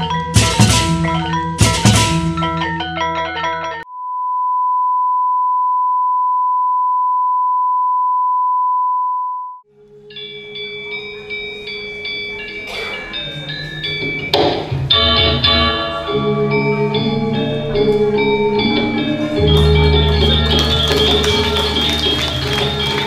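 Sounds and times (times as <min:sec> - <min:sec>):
mallet percussion music: 0:00.0 - 0:03.8, 0:10.0 - 0:23.0.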